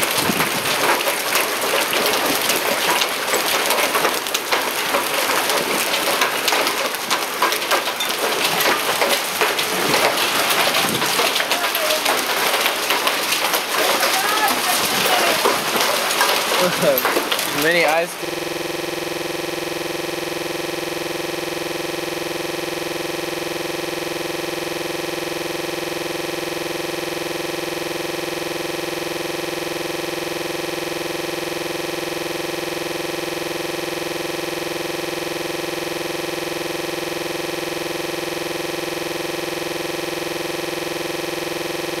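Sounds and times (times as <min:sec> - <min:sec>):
electronic drone of stacked tones: 0:16.6 - 0:42.0.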